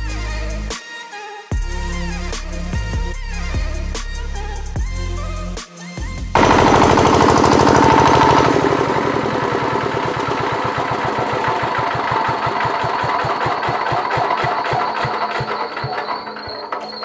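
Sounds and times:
diesel generator engine running: 0:06.4 - 0:17.0.

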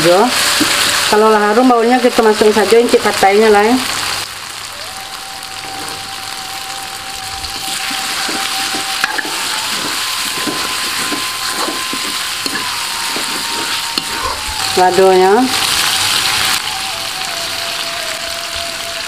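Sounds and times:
food sizzling in hot oil: 0:00.0 - 0:19.0
metal spatula scraping wok: 0:07.6 - 0:16.6.

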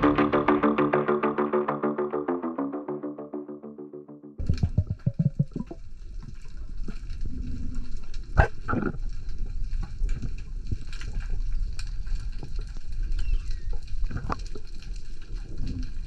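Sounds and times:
gurgles of bubbles: 0:04.4 - 0:11.2
underwater crackling and bubbling: 0:04.4 - 0:16.0
underwater low rumble: 0:04.4 - 0:16.0.

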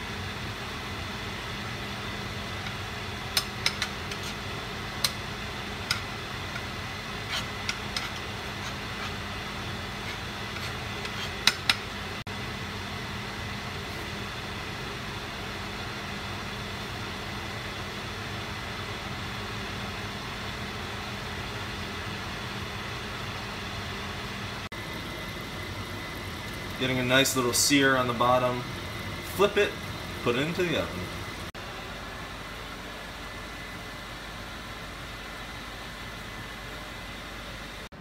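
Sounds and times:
steady background hum: 0:00.0 - 0:38.0
utensil clicking in pan: 0:03.3 - 0:04.2.

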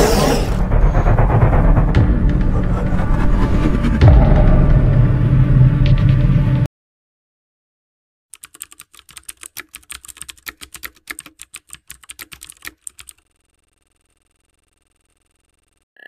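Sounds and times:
rapid keyboard key clicks: 0:08.3 - 0:13.2.

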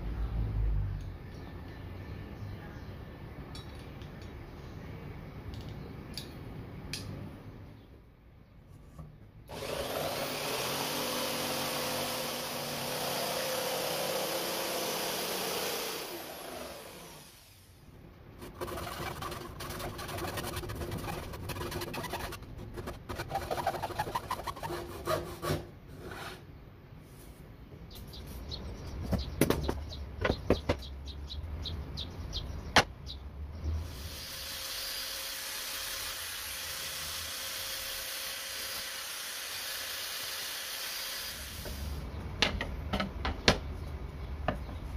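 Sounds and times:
electric jigsaw cutting wood: 0:09.5 - 0:17.6, 0:34.0 - 0:41.8
hand saw rasping: 0:18.4 - 0:25.6.

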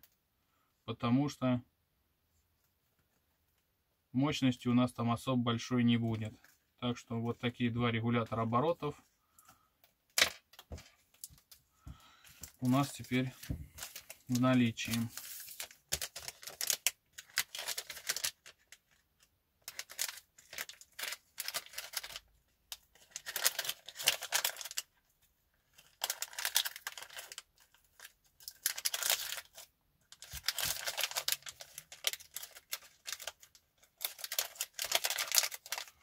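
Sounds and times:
plastic bags crinkling: 0:10.2 - 0:19.0, 0:19.6 - 0:24.9, 0:25.7 - 0:36.0.

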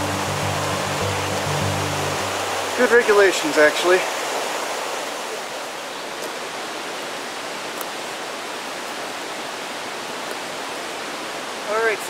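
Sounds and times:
steady rushing noise: 0:00.0 - 0:05.2.

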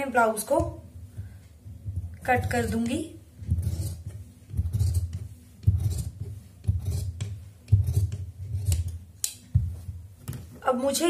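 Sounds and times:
shears snipping fabric: 0:03.6 - 0:09.4.

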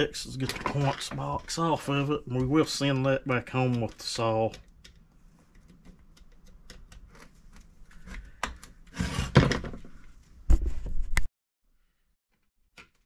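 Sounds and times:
scrape on workbench: 0:08.9 - 0:09.5.

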